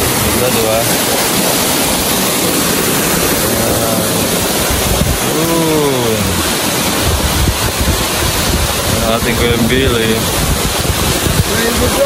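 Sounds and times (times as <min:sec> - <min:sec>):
waterfall roaring: 0:00.0 - 0:12.0
person's voice: 0:05.2 - 0:06.4, 0:08.9 - 0:10.4.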